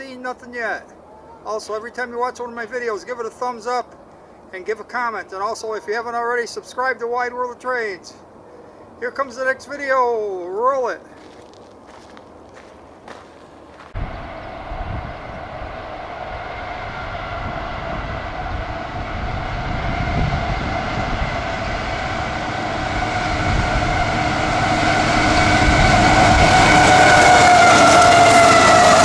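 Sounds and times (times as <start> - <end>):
freight train approaching: 11.0 - 29.0
multi-tone whine: 13.1 - 29.0.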